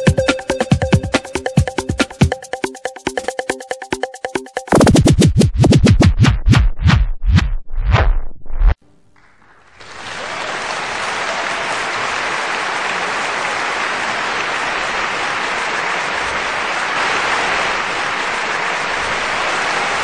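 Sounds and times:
crowd applause: 0:09.2 - 0:20.0.

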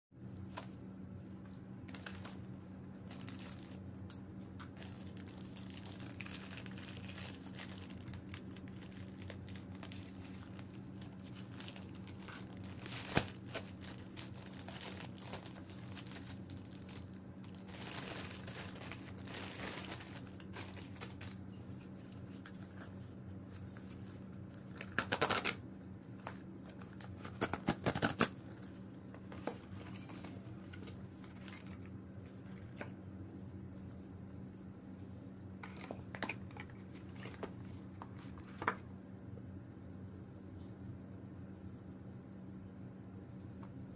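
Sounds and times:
steady low hum: 0:00.2 - 0:43.9
plastic bag crinkling and tearing: 0:01.9 - 0:03.8, 0:04.7 - 0:21.5, 0:24.5 - 0:25.6, 0:26.3 - 0:28.6
cardboard tear strip ripping: 0:24.8 - 0:25.6.

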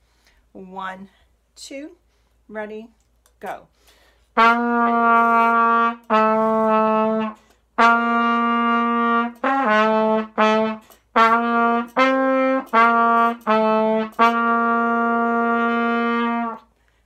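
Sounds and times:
solo trumpet held notes: 0:04.3 - 0:16.7.

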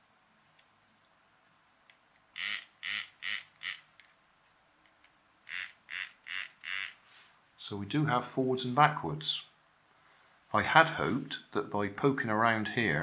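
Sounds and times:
toy motor whirring in spurts: 0:02.4 - 0:03.9, 0:05.5 - 0:07.0.

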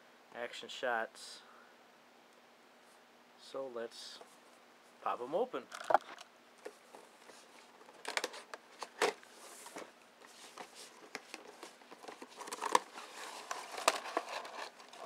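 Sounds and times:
packaging rustling: 0:05.7 - 0:15.0.

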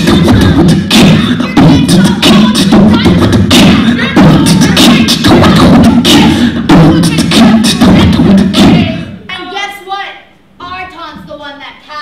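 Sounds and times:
beatboxing into microphone: 0:00.0 - 0:09.3.

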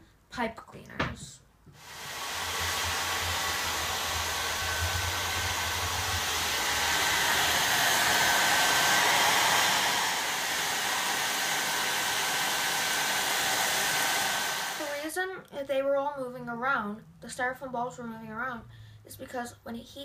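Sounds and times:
hair dryer running: 0:01.8 - 0:15.0.

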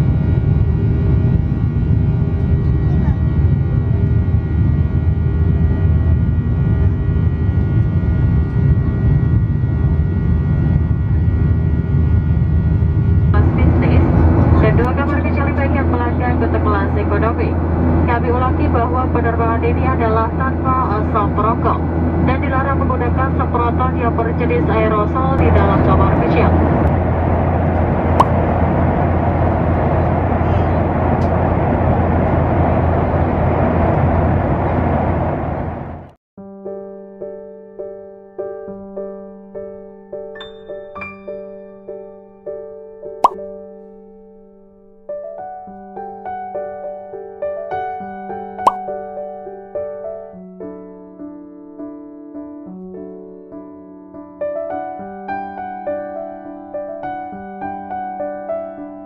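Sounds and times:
jet engine and airflow rumble: 0:00.0 - 0:36.2.

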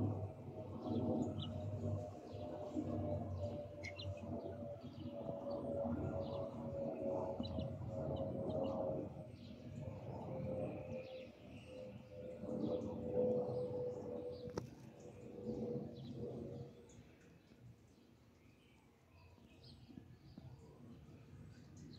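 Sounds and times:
jet engine rumble and whine: 0:00.0 - 0:17.9
small birds chirping: 0:03.4 - 0:06.5.

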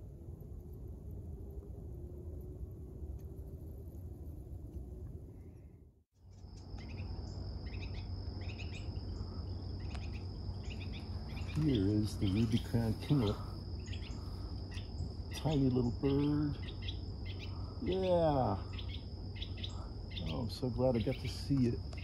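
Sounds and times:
low background rumble: 0:00.0 - 0:22.0
high insect trill: 0:06.2 - 0:22.0
bird chattering calls: 0:09.8 - 0:18.1.

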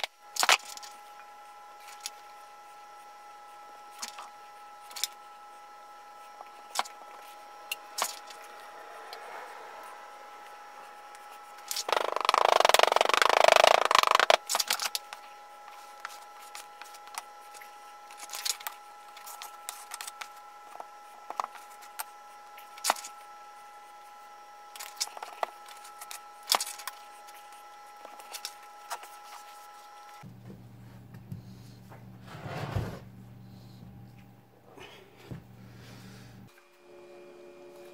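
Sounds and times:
faint steady hum: 0:00.0 - 0:37.9
rough scraping rush: 0:07.8 - 0:11.9.

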